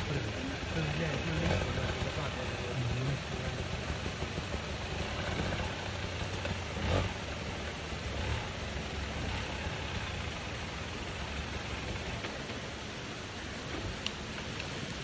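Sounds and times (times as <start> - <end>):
dirt bike engine revving: 0.0 - 12.5.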